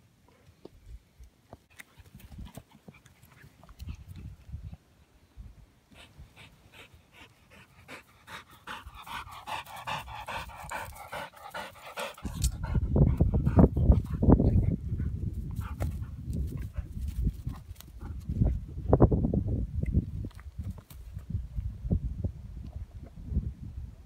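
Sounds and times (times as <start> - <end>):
dog panting: 5.9 - 17.0.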